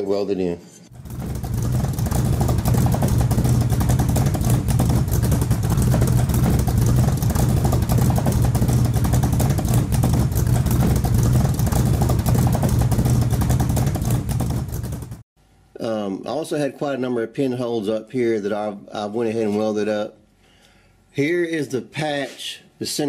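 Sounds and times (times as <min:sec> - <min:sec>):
vehicle engine running loudly: 0:00.9 - 0:15.2.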